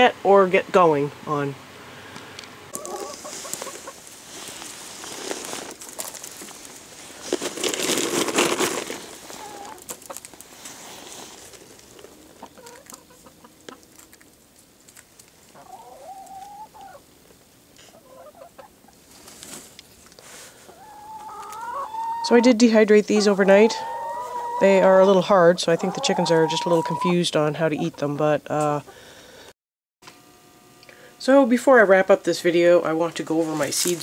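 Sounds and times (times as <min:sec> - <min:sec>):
hens clucking: 0:02.7 - 0:04.2, 0:08.3 - 0:10.4, 0:11.2 - 0:14.1, 0:15.5 - 0:17.2, 0:17.8 - 0:19.1, 0:20.5 - 0:29.0
rustling: 0:02.8 - 0:15.7, 0:18.9 - 0:20.7, 0:33.2 - 0:34.0.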